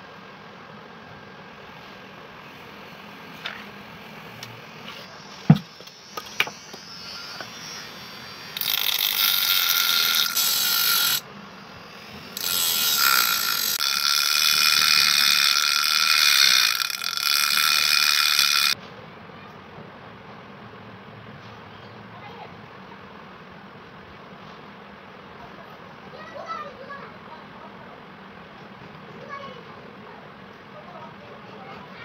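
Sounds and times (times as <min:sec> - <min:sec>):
angle grinder grinding metal: 0:02.4 - 0:18.8.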